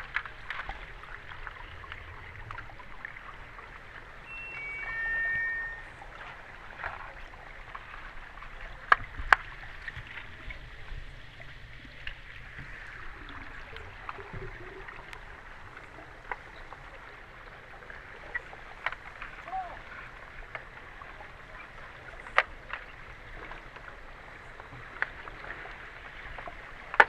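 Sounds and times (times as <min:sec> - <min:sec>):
descending tones: 0:04.2 - 0:06.2.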